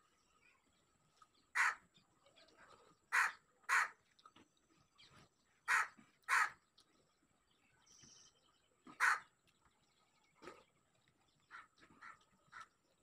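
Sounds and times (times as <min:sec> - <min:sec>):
crow cawing: 0:01.6 - 0:01.8, 0:03.1 - 0:04.0, 0:05.7 - 0:06.6, 0:09.0 - 0:09.2.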